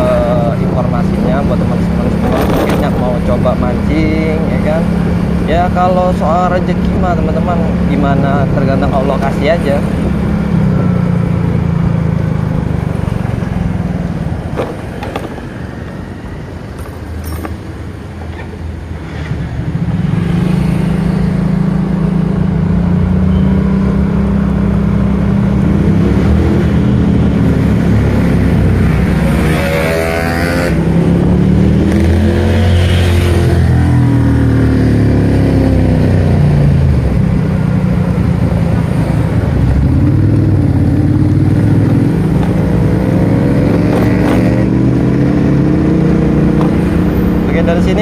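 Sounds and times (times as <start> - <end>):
motorcycle engine revving: 0.0 - 15.6, 19.0 - 48.0.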